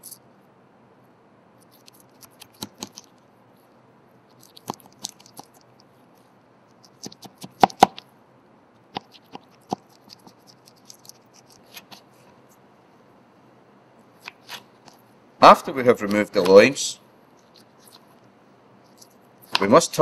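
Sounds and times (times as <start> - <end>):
knife clicking and scraping on bone: 1.6 - 3.1, 4.3 - 5.8, 6.7 - 8.0, 9.0 - 12.0.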